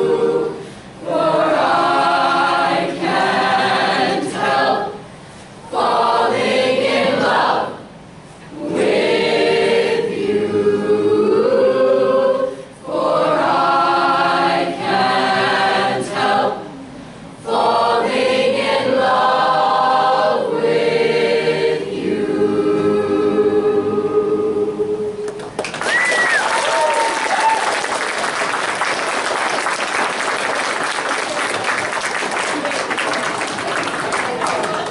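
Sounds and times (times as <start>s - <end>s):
choir singing: 0.0s - 5.0s, 5.6s - 7.9s, 8.5s - 16.8s, 17.4s - 25.3s
applause and cheering: 25.4s - 34.9s
people whooping: 25.6s - 28.4s.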